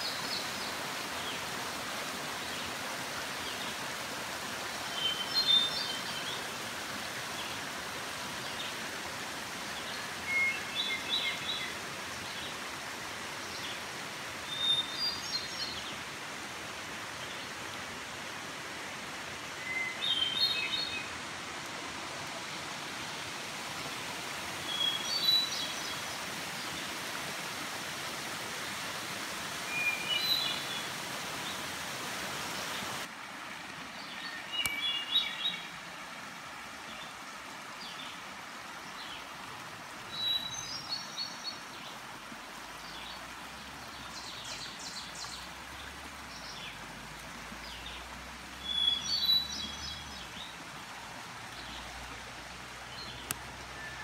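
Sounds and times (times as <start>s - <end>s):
stream rushing over rocks: 0.0s - 54.0s
songbird singing: 9.9s - 12.5s, 19.6s - 21.2s, 24.6s - 26.9s, 29.6s - 31.6s, 33.9s - 35.7s, 40.1s - 42.0s, 47.6s - 50.6s, 52.8s - 54.0s.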